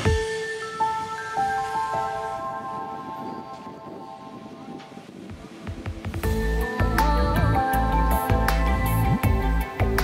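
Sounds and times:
bell-like chord ringing: 0.1s - 5.0s.

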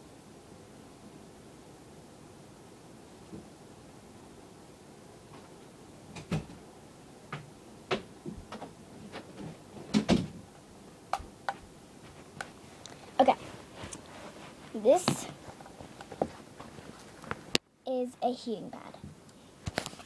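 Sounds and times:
knocks and clicks of handling things: 7.3s - 10.4s.

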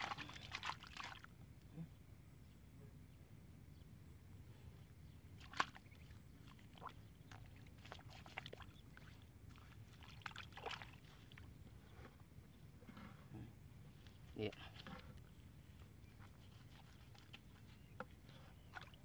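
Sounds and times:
muddy water splashing: 0.0s - 1.3s, 5.3s - 11.6s, 16.1s - 19.0s.

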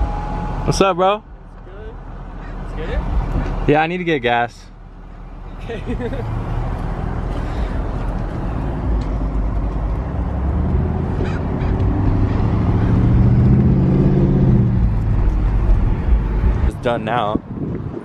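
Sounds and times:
low road rumble: 0.0s - 18.0s
car engine revving: 5.8s - 17.2s.

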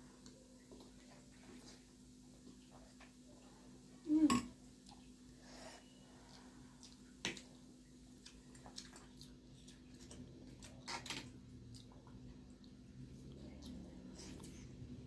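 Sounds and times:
faint wet chewing: 4.7s - 15.0s.

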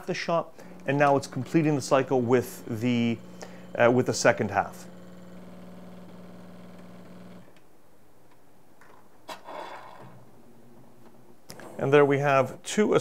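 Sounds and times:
espresso machine pump humming: 0.6s - 7.5s.

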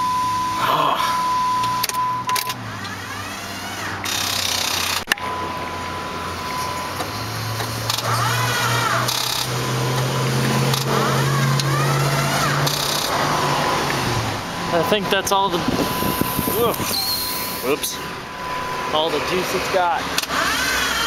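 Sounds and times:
starter motor cranking: 1.8s - 5.2s, 7.6s - 14.1s, 20.1s - 21.0s
steady hum: 11.8s - 20.2s.

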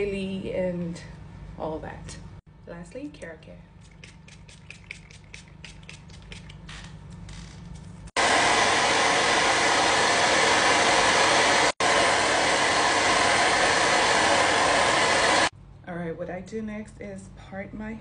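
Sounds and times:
spray bottle spritzing: 3.8s - 6.9s
hair dryer blowing: 8.1s - 15.5s.

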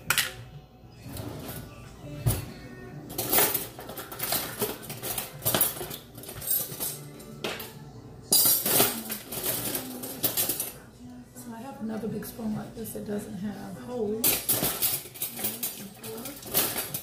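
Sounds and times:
utensil scraping and clinking: 3.1s - 10.8s, 14.2s - 17.0s.

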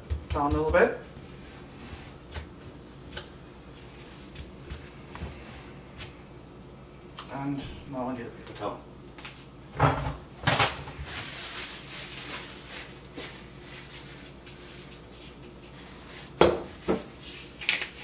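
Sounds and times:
kitchen items clattering on countertop: 16.4s - 18.0s.

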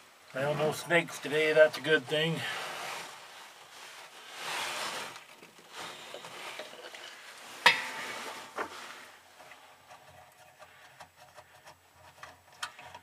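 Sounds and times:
rustling: 0.0s - 13.0s
metal hand tools clanking: 7.6s - 8.9s.

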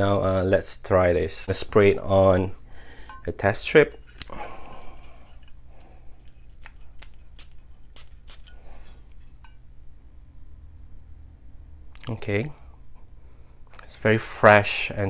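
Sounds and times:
perfume atomizer spraying: 4.0s - 9.4s.

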